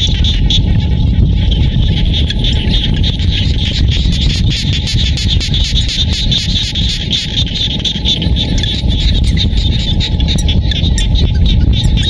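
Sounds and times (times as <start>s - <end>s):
frogs calling in chorus: 0.0s - 12.0s
steady low rumble: 0.0s - 12.0s.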